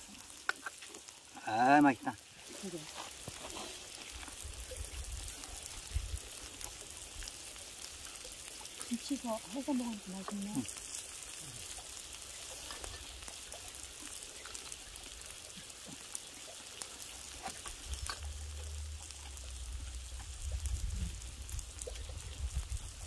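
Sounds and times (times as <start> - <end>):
meat sizzling on a griddle: 0.0 - 23.0
low rumble: 18.0 - 23.0.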